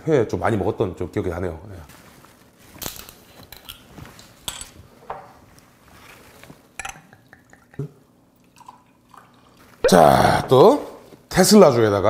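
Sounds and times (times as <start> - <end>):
liquid pouring into glass: 7.1 - 9.7.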